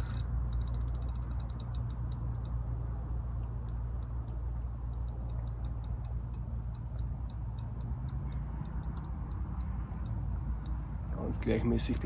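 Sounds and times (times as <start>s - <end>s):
fishing reel clicking: 0.0s - 2.6s
steady low rumble: 0.0s - 12.0s.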